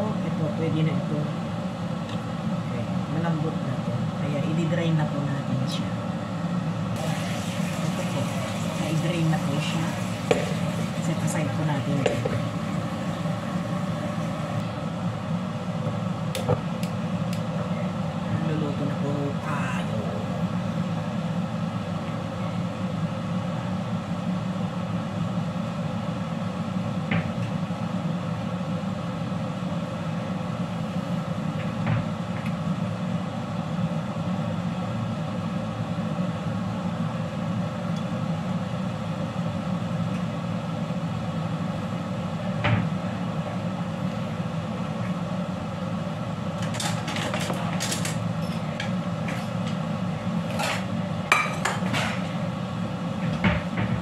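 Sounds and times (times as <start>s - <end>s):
gas burner hum: 0.0s - 54.0s.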